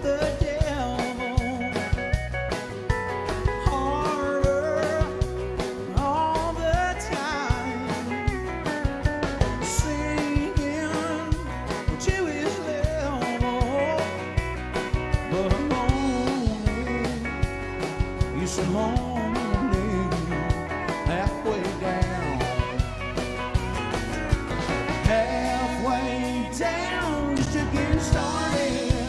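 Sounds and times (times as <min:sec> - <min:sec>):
person singing: 0:00.0 - 0:01.8, 0:03.5 - 0:08.4, 0:09.6 - 0:14.2, 0:15.2 - 0:17.5, 0:18.2 - 0:22.8, 0:25.0 - 0:29.0
country band playing: 0:00.0 - 0:29.0
drum kit beat: 0:00.0 - 0:29.0
pedal steel guitar: 0:00.0 - 0:29.0.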